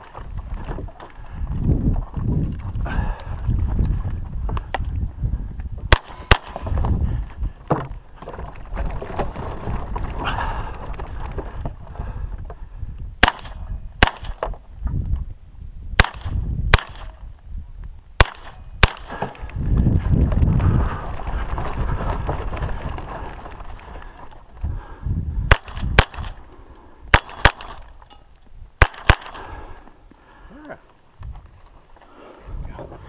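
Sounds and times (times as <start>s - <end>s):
wind rumble on microphone: 0.0s - 33.0s
rifle shots: 5.9s - 6.6s, 13.2s - 14.4s, 16.0s - 17.2s, 18.2s - 19.1s, 25.5s - 26.4s, 27.1s - 27.9s, 28.8s - 29.5s.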